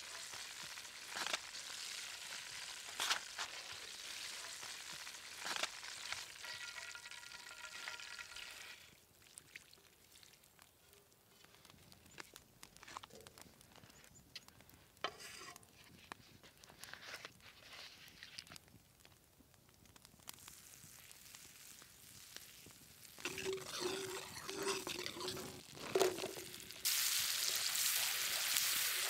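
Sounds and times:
butter sizzling in a pan: 0.0 - 9.0, 20.0 - 29.0
hot oil sizzling in frying pan: 0.0 - 9.0, 20.0 - 29.0
wood fire crackling and popping: 0.0 - 29.0.

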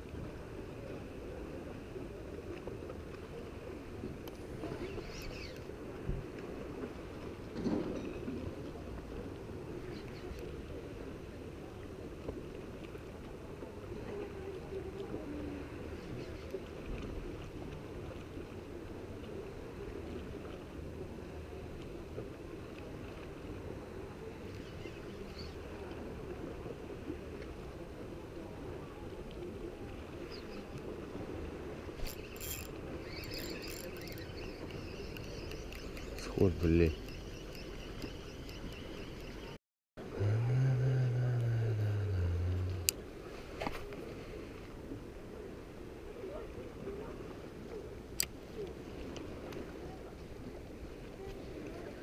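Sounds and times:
sea water lapping against pier: 0.0 - 52.0
fishing reel ticking and rasping: 32.0 - 36.3
faint clicks: 32.0 - 39.5.

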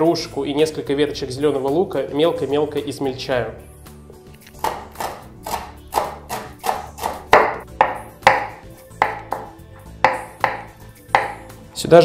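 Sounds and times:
background music: 0.0 - 12.0
knife chopping herbs on wooden board: 4.6 - 11.6.

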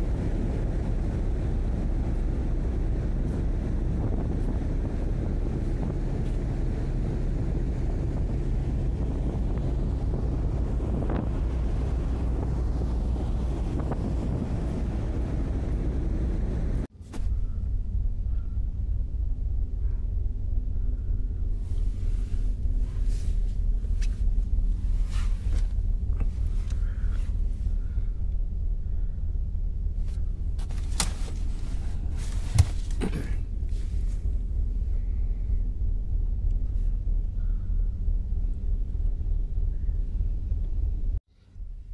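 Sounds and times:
ship engines droning: 0.0 - 30.6
wind buffeting microphone: 0.0 - 41.9.

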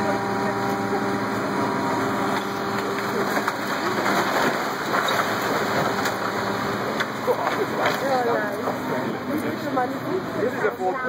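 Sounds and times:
bricks and rubble falling: 3.2 - 6.2.

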